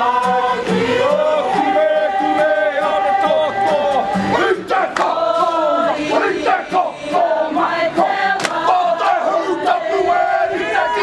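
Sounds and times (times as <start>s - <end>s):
group chanting and shouting in unison: 0.0s - 11.0s.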